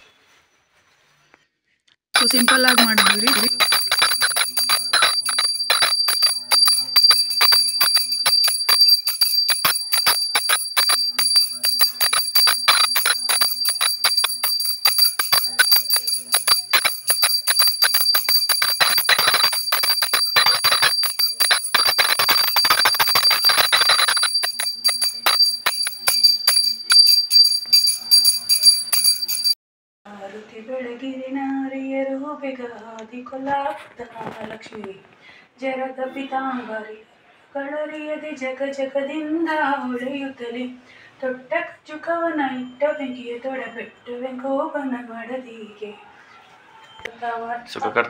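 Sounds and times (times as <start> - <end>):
brass hand bell ringing rapidly: 2.2 - 29.6.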